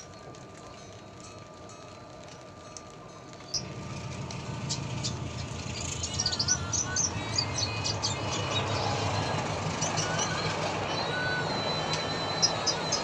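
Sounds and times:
bird chirping and twittering: 3.5s - 13.0s.

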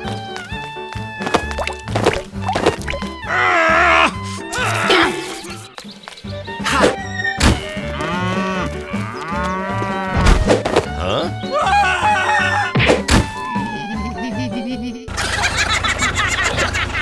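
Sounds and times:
background music: 0.0s - 17.0s
sharp thunks: 6.8s - 7.7s, 10.1s - 11.0s
cow mooing: 7.6s - 10.2s.

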